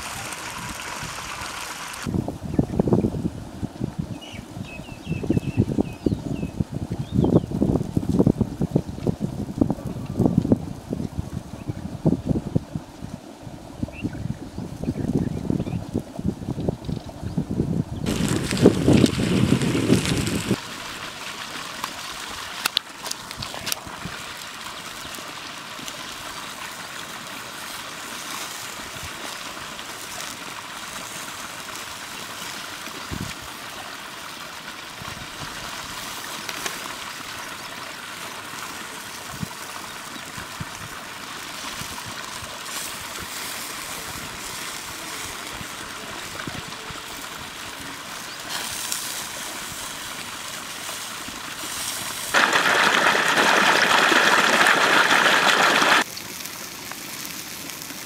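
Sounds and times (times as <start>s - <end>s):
fire crackling and popping: 0.0s - 2.1s, 18.0s - 33.4s, 35.4s - 58.0s
meat sizzling on a grill: 24.1s - 33.0s, 41.1s - 46.2s, 47.1s - 58.0s.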